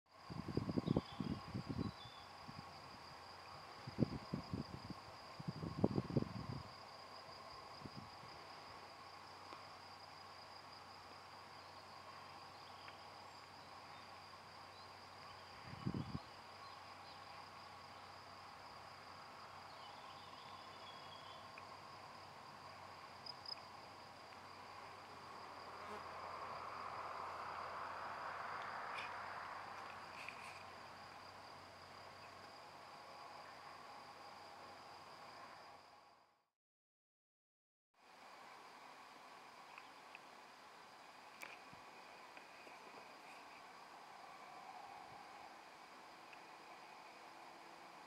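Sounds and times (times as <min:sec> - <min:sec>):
high-pitched insect trill: 0:00.1 - 0:36.3.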